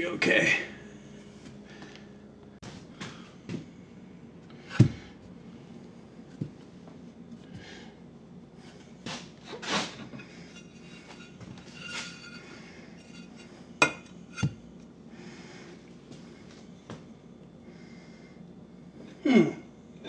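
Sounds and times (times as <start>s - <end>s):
tiles scraping and clinking: 9.5s - 14.5s.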